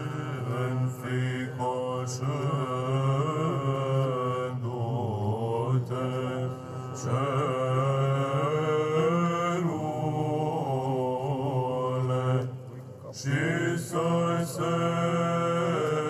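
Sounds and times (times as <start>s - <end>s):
male choir chanting: 0.0s - 16.0s.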